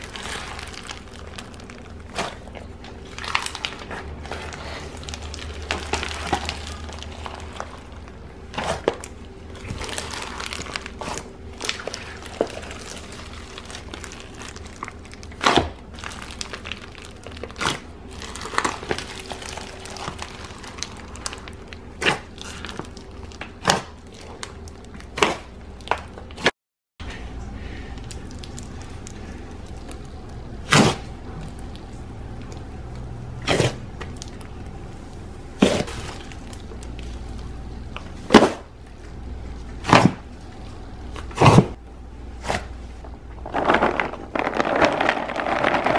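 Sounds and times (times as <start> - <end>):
crunchy slime crackles: 0.0 - 26.5, 27.9 - 41.8, 42.4 - 45.9.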